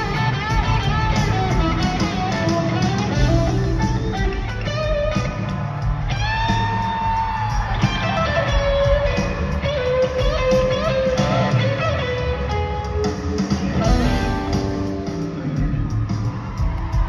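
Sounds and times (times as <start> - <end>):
live rock band: 0.0 - 17.0
electric guitar lead notes: 7.8 - 15.8.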